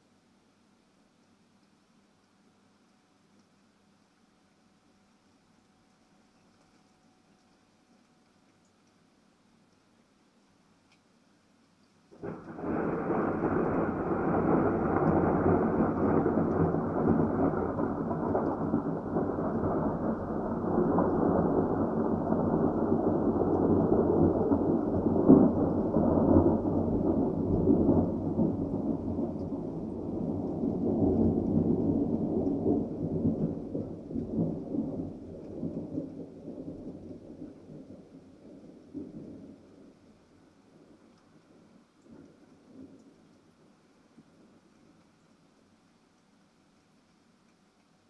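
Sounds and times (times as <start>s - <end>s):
rain falling: 0.0s - 48.0s
thunder rumbling: 12.1s - 43.2s.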